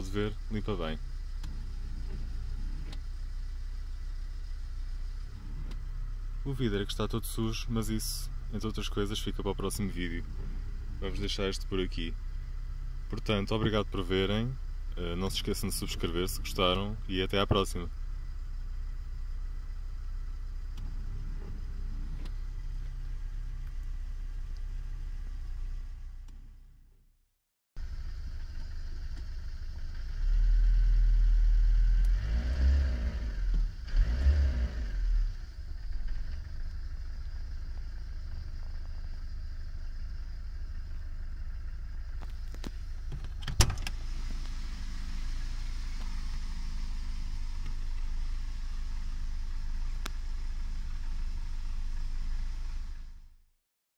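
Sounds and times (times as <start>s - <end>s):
car engine and road noise: 0.0s - 27.2s, 27.8s - 53.6s.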